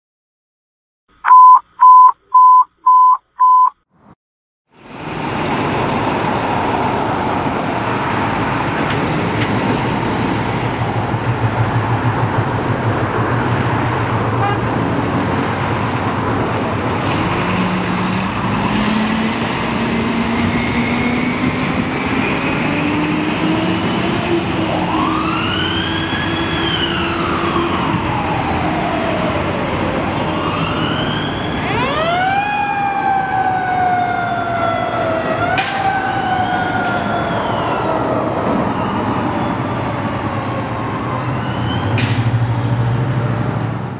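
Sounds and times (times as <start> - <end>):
road noise: 4.7 - 43.9
diesel truck engine accelerating: 4.9 - 35.4
siren wailing: 22.2 - 41.9.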